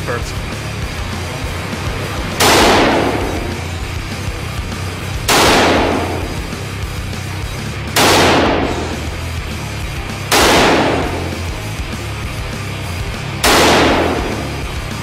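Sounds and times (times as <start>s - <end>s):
background music: 0.0s - 15.0s
rifle shots with echo: 2.4s - 3.7s, 5.2s - 6.6s, 7.9s - 9.2s, 10.3s - 11.5s, 13.4s - 14.8s.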